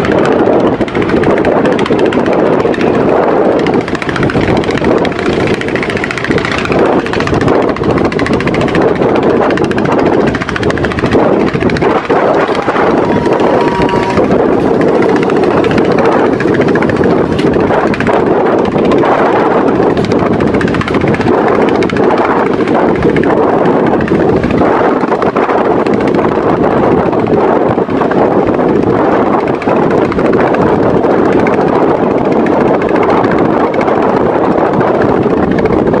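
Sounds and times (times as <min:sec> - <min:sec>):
boat engine running: 0:00.0 - 0:36.0
choppy water slapping: 0:00.0 - 0:36.0
wind on microphone: 0:00.0 - 0:36.0.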